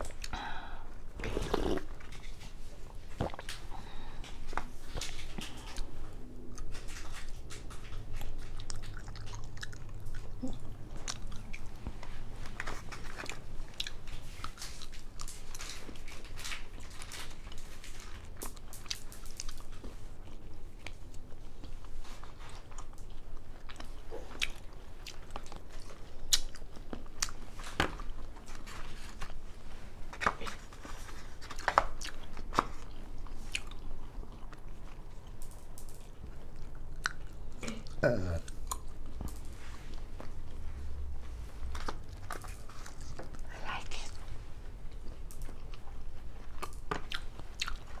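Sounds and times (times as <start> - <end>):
person chewing: 0.0 - 29.4, 30.3 - 40.7, 41.6 - 48.0
mouth clicks and crunches: 1.2 - 29.4, 44.9 - 48.0.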